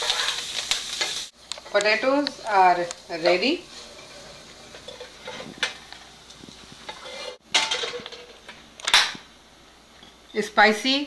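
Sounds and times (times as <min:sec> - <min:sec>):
wooden spatula scraping pan: 0:00.0 - 0:01.2, 0:03.1 - 0:08.4
faint sizzle: 0:00.0 - 0:11.0.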